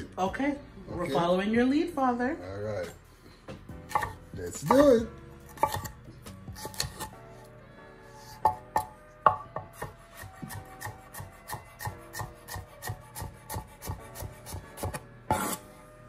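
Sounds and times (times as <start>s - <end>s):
knife chopping on wooden board: 3.5s - 7.2s, 8.4s - 15.6s.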